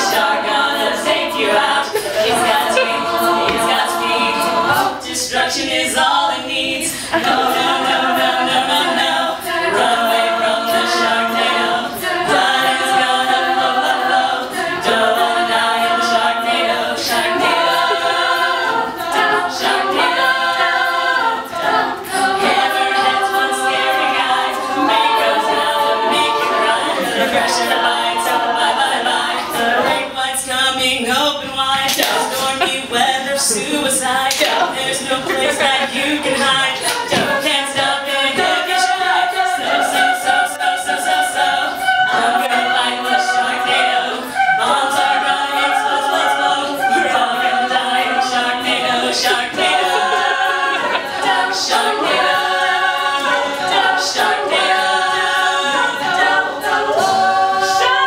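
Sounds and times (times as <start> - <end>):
a cappella group singing: 0.0 - 58.0.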